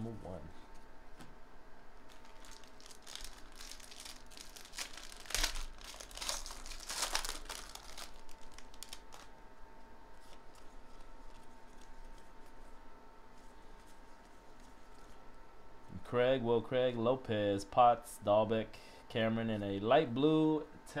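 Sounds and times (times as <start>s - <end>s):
foil wrapper crinkling and tearing: 2.1s - 9.3s.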